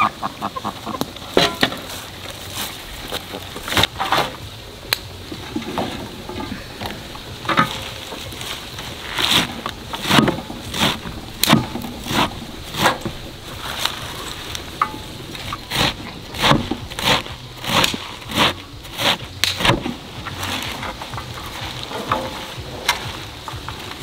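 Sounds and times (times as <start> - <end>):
cleaver chopping leafy greens: 7.5 - 24.0.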